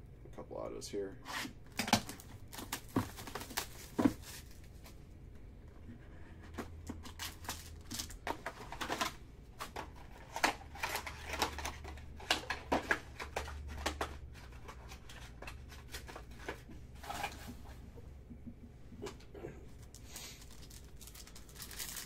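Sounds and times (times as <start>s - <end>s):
low steady hum: 0.0s - 22.0s
cards clicking and rustling: 1.7s - 5.0s, 6.6s - 17.6s, 19.8s - 22.0s.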